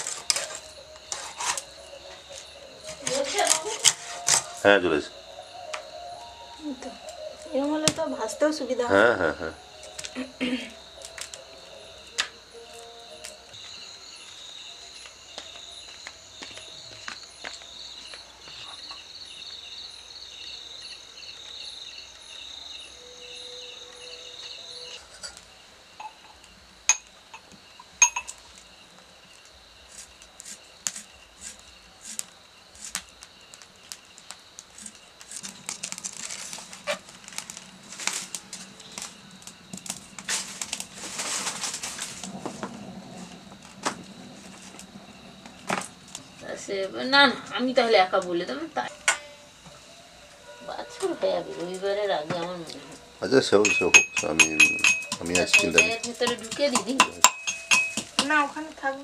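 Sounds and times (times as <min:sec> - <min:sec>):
crickets chirping: 0:00.0 - 0:59.0
metal pots and utensils clattering: 0:53.6 - 0:58.5.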